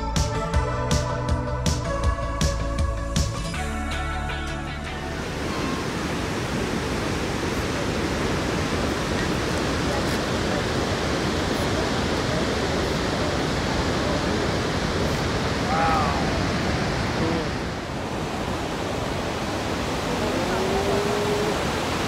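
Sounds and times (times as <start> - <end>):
waterfall rushing: 5.0 - 22.0
faint voice: 9.8 - 16.4, 17.2 - 17.6, 20.0 - 21.8.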